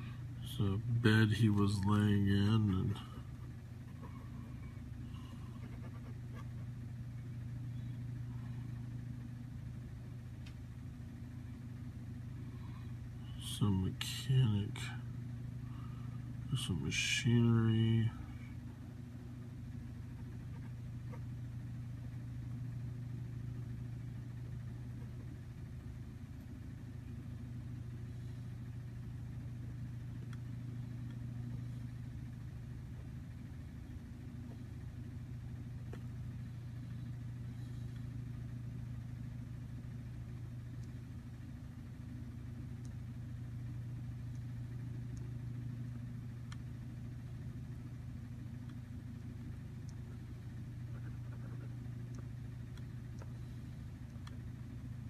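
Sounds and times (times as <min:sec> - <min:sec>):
motor humming: 0:00.0 - 0:55.0.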